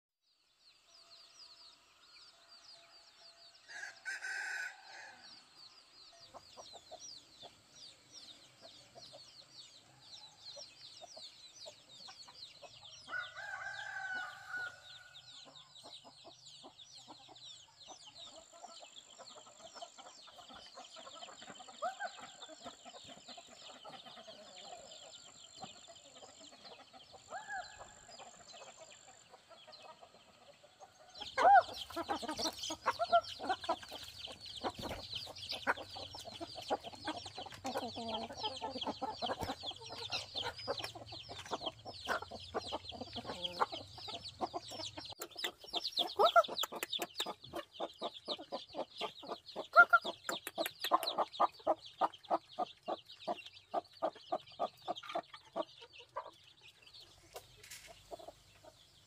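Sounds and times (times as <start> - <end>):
rooster crowing: 3.6 - 5.3, 13.1 - 14.9
chickens clucking: 3.6 - 59.0.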